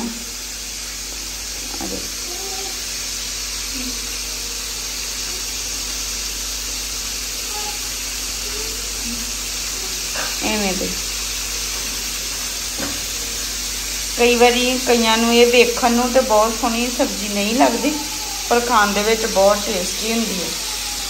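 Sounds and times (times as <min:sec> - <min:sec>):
hot oil sizzling in a pan: 0:00.0 - 0:21.0.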